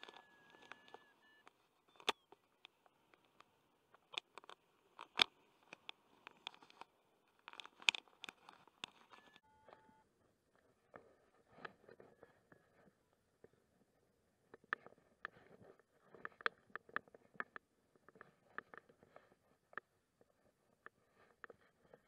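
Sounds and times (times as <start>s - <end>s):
harness clicks and crackles: 0.0s - 9.4s.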